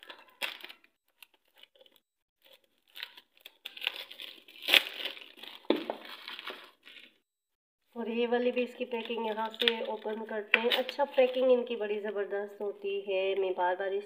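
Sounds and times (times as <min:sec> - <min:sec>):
plastic wrap crinkling and tearing: 0:00.0 - 0:07.2, 0:08.6 - 0:11.8.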